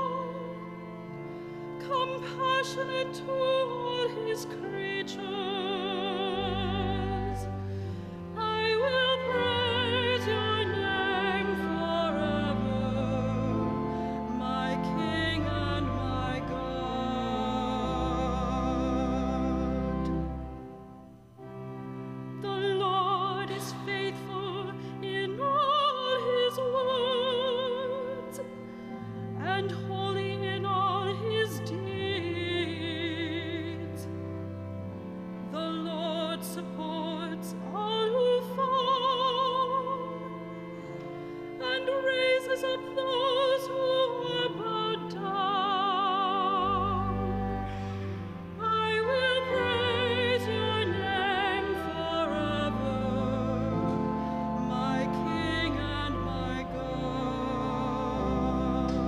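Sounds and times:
person singing with vibrato: 0:01.8 - 0:07.6, 0:08.3 - 0:20.2, 0:22.4 - 0:28.6, 0:35.5 - 0:59.0
sustained keyboard chords: 0:43.8 - 0:59.0.

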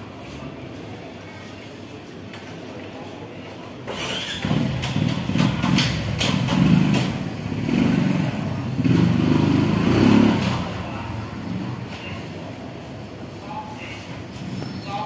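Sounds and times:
motorbike engine revving: 0:03.9 - 0:12.4.

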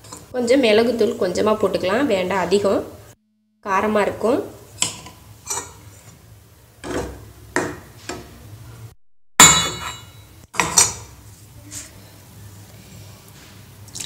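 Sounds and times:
metal ladle clinking in pan: 0:09.4 - 0:11.0.

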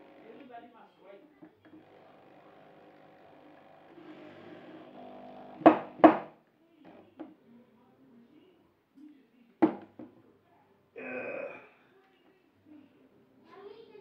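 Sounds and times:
knocks on wooden cabinet: 0:05.6 - 0:06.4, 0:09.6 - 0:10.2
faint voices: 0:10.2 - 0:14.0.

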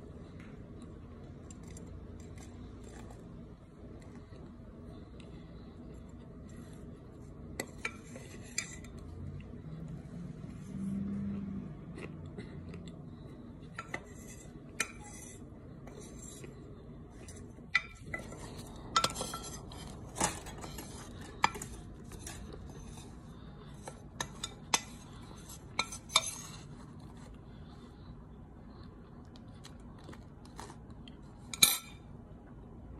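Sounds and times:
spoon scraping glass dish: 0:13.8 - 0:16.5, 0:23.8 - 0:26.7.

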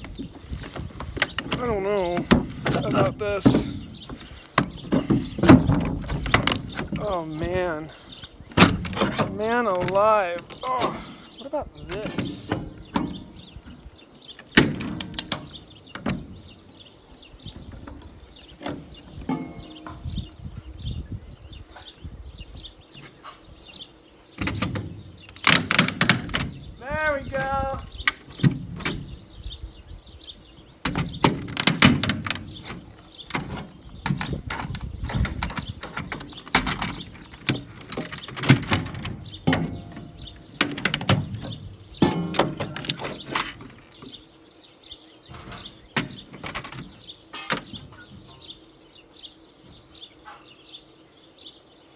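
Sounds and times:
plastic cracking and scraping: 0:00.0 - 0:07.2, 0:25.2 - 0:26.6, 0:31.2 - 0:41.6, 0:42.2 - 0:44.1
birds chirping faintly: 0:00.0 - 0:51.9
brittle plastic trim snapping: 0:24.5 - 0:26.5, 0:31.2 - 0:43.8.

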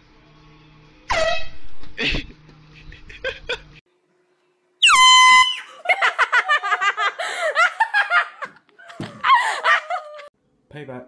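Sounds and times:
people laughing: 0:05.7 - 0:10.3.

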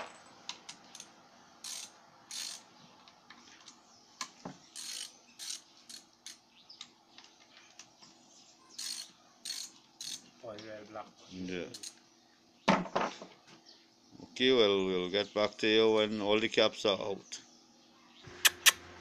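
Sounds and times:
ratchet wrench clicking: 0:01.6 - 0:02.6, 0:04.8 - 0:06.4, 0:08.8 - 0:10.2.

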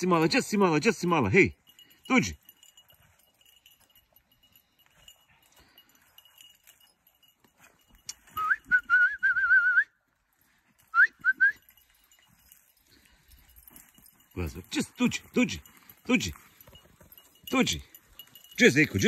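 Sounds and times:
person whistling: 0:08.3 - 0:10.0, 0:10.9 - 0:11.6.

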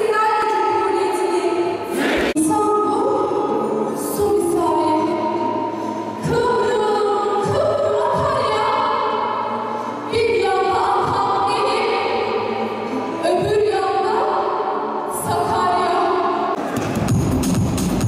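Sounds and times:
choir singing: 0:01.8 - 0:02.4
young woman singing into a microphone: 0:06.2 - 0:09.2, 0:10.1 - 0:12.3.

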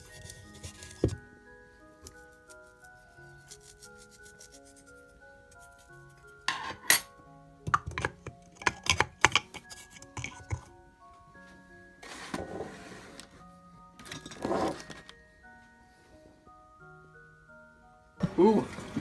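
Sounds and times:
background music melody: 0:00.0 - 0:19.0
kitchen utensils and dishes clattering: 0:06.5 - 0:07.1, 0:07.7 - 0:10.6, 0:14.0 - 0:15.0.

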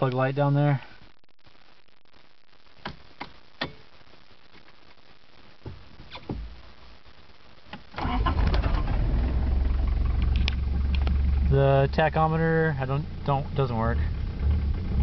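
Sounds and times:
diesel engine starting and running: 0:08.0 - 0:15.0.

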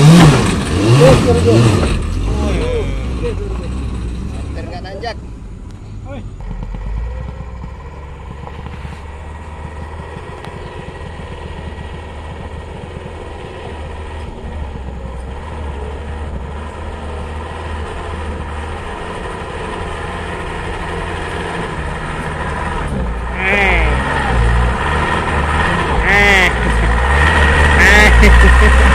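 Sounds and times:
truck engine under load: 0:00.0 - 0:28.9.

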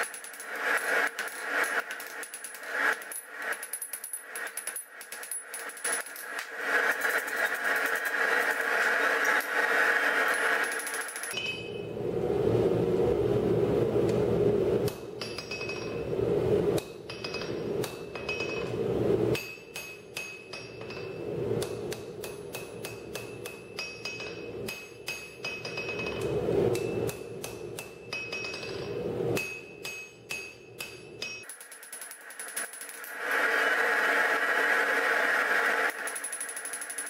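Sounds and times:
hammer ringing on anvil: 0:10.3 - 0:11.8, 0:15.2 - 0:16.0, 0:16.8 - 0:18.8, 0:19.4 - 0:33.0
steady rushing noise: 0:11.7 - 0:19.4, 0:20.7 - 0:29.5, 0:33.1 - 0:36.2.

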